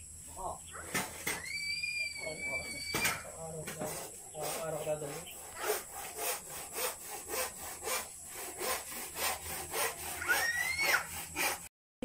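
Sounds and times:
hand saw cutting wood: 3.6 - 11.7.

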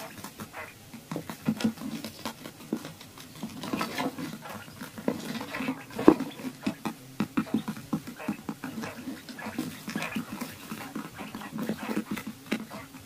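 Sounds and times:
quail pecking grain: 0.0 - 13.0.

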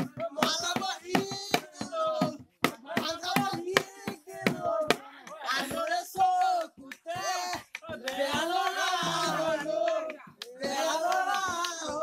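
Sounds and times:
people singing folk song: 0.0 - 12.0
sharp hand claps: 5.3 - 12.0.

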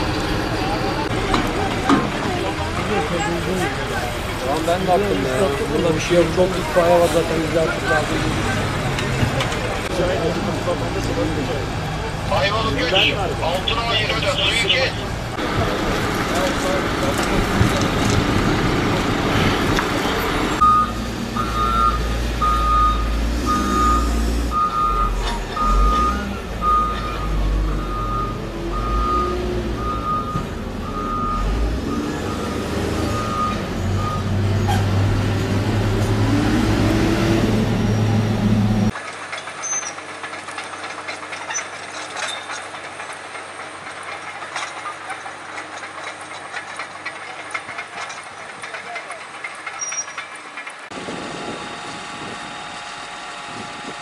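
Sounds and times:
deep engine rumble: 0.0 - 39.0
reversing alarm beeping: 20.6 - 34.3.

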